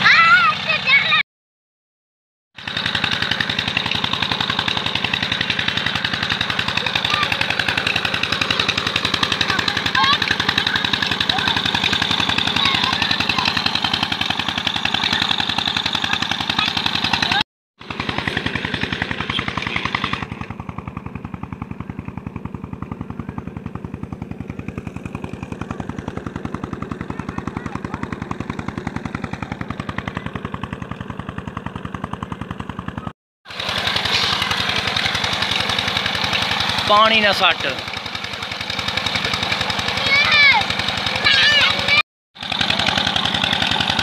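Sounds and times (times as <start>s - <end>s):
pump engine chugging: 0.0s - 1.2s, 2.6s - 44.0s
water gushing and splashing: 33.5s - 40.0s.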